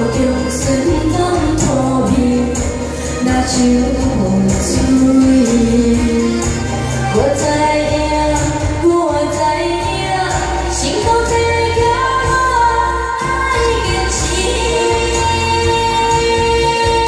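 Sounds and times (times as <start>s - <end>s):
backing music with a steady beat: 0.0s - 17.0s
girl singing into a microphone: 0.0s - 17.0s.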